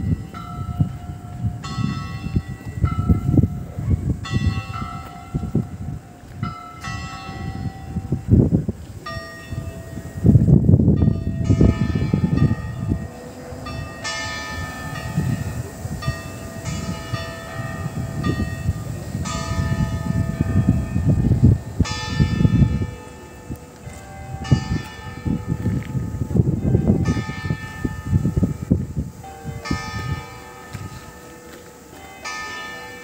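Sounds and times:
clock bells striking: 11.0 - 33.0.

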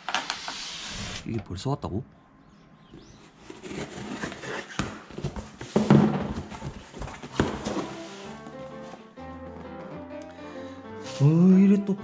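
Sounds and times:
boxes rustling and thumping: 3.0 - 9.0.

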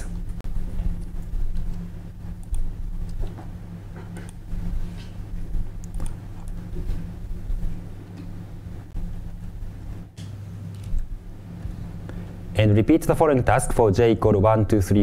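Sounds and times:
low electrical hum: 0.0 - 15.0
keyboard and mouse clicks: 5.8 - 6.6.

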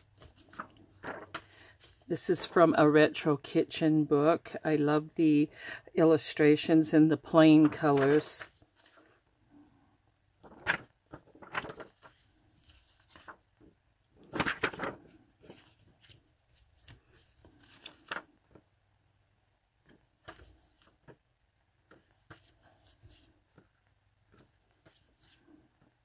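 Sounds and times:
paper cards rustling and sliding: 0.0 - 2.5, 7.4 - 9.2, 10.4 - 18.7, 19.8 - 21.2, 21.8 - 26.0.

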